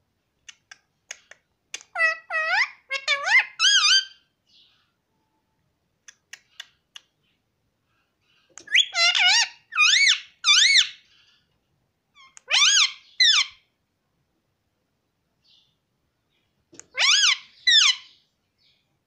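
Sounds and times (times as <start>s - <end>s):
parakeet soft clicks: 0.4s - 2.0s
parakeet warbling calls: 1.9s - 4.2s, 8.7s - 11.0s, 12.2s - 13.6s, 16.9s - 18.2s.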